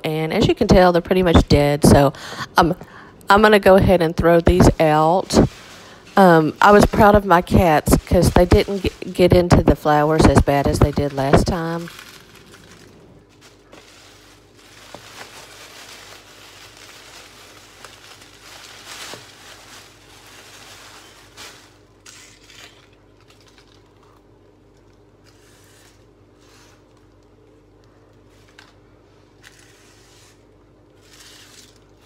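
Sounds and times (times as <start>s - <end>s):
plastic bag rustling and crinkling: 3.8s - 28.8s.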